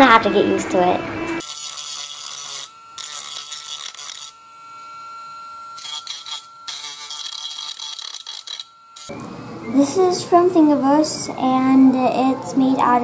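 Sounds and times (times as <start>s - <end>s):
rotary tool whining: 1.1s - 9.3s
grinding plastic part: 5.8s - 9.1s.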